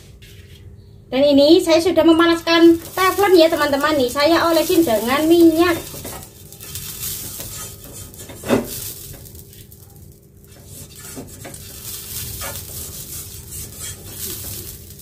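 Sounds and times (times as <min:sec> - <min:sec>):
faint oil sizzle: 0:01.8 - 0:15.0
brush sweeping over frying pan: 0:05.8 - 0:15.0.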